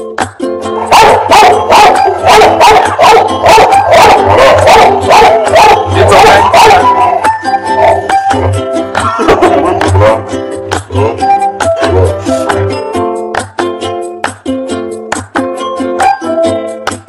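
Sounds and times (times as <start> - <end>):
background music: 0.0 - 17.0
puppy yelping and howling: 0.8 - 8.2.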